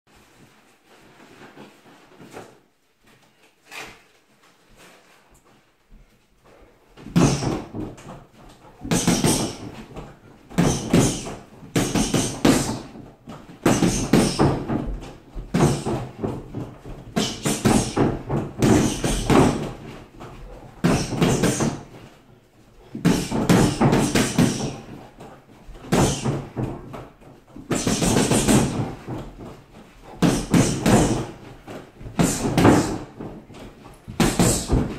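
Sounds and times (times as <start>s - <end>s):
gloves punching a punchbag: 7.0s - 8.1s, 8.8s - 9.9s, 10.5s - 20.0s, 20.8s - 22.0s, 22.9s - 25.0s, 25.8s - 27.0s, 27.6s - 34.9s.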